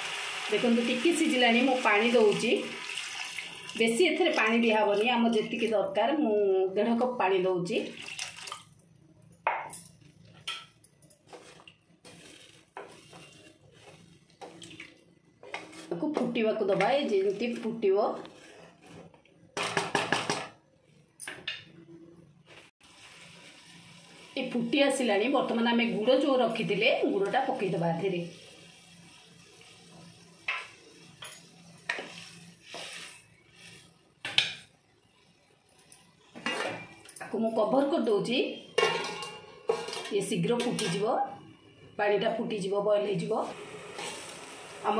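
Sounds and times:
spatula scraping pan: 11.2 - 14.7, 15.4 - 19.2, 31.4 - 34.0, 38.8 - 41.0.

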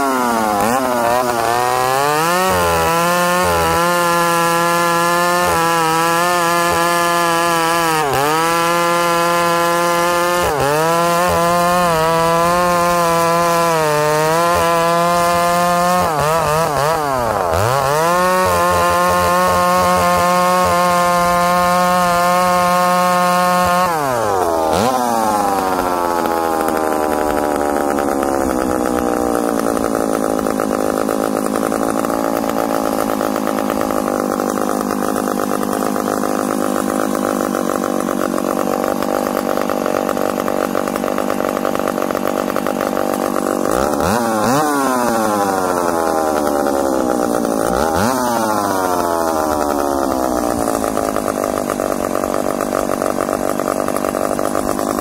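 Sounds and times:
chainsaw cutting a log: 0.0 - 55.0
chainsaw idling: 0.0 - 55.0.

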